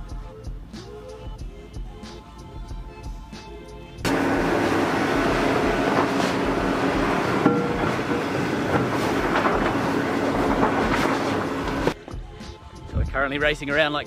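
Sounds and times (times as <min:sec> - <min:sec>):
mechanical rattling: 0:04.1 - 0:12.0
metal cover knocking down: 0:04.1 - 0:12.0.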